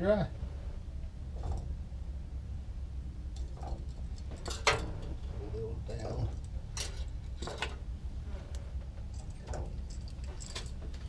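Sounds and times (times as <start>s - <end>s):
low hum: 0.0s - 11.0s
metal hooks and hangers rattling: 3.4s - 7.8s, 8.9s - 11.0s.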